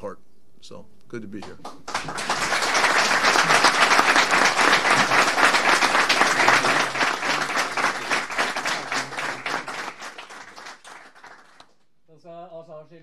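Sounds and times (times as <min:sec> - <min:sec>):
people applauding: 0:01.4 - 0:11.7.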